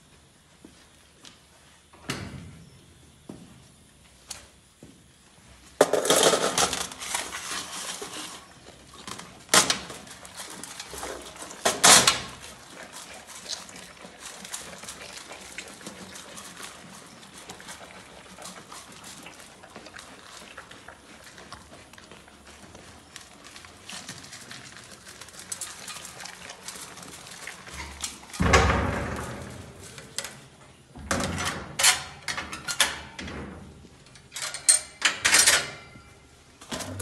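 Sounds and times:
animals chewing with small crunches: 3.5s - 30.9s
rustling and clattering at a metal tray: 5.8s - 37.0s.

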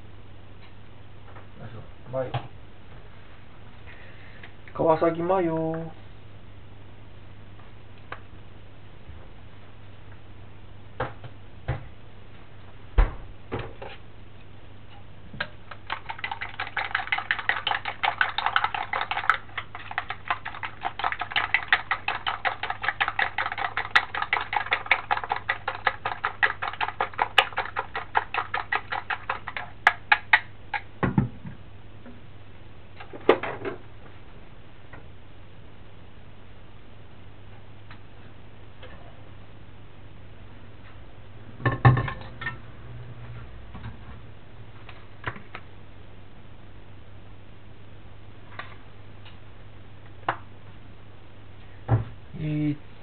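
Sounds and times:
chopsticks beating in metal bowl: 15.7s - 30.9s.

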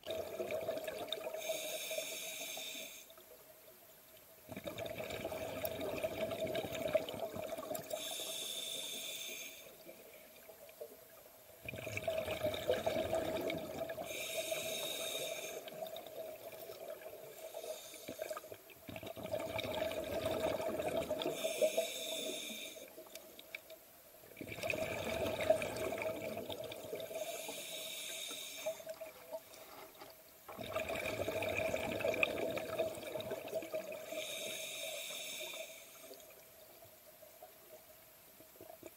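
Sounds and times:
diver breathing through regulator: 1.4s - 3.1s, 7.9s - 9.8s, 14.0s - 15.8s, 21.3s - 23.0s, 27.1s - 28.9s, 34.0s - 36.2s
bubbling exhalations: 11.7s - 14.1s, 18.2s - 21.4s, 24.4s - 27.1s.

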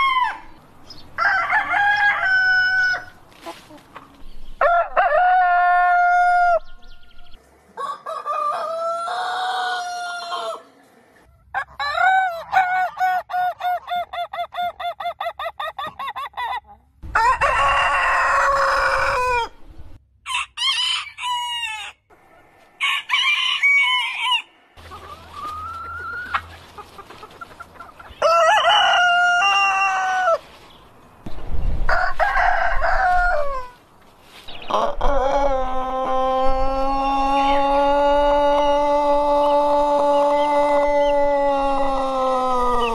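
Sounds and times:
roosters crowing: 0.0s - 3.2s, 4.6s - 6.8s, 7.8s - 10.7s, 17.0s - 19.6s, 20.3s - 22.1s, 22.8s - 26.8s, 27.8s - 30.5s, 31.9s - 33.8s, 34.5s - 42.9s.

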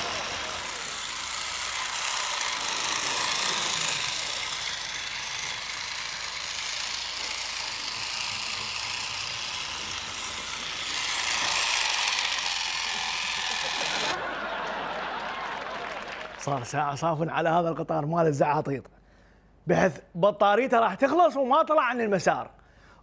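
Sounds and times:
toy train motor whirring: 0.0s - 14.2s.

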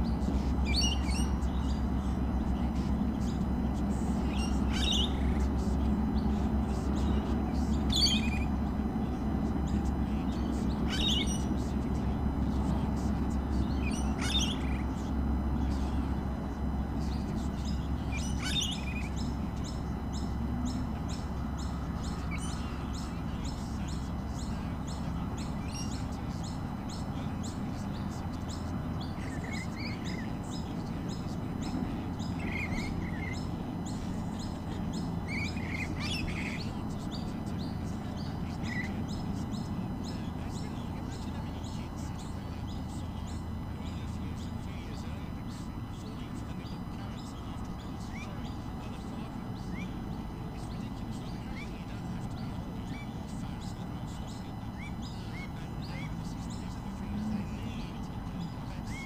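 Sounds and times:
sharp high bird calls: 0.0s - 16.2s
bird twittering: 0.0s - 59.0s.

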